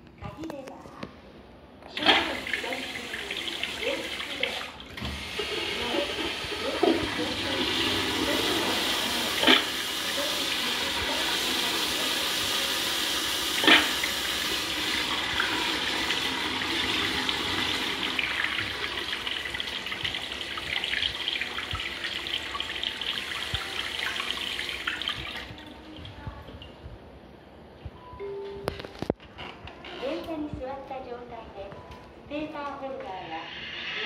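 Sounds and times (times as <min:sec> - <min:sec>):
toilet flushing: 0:01.9 - 0:25.8.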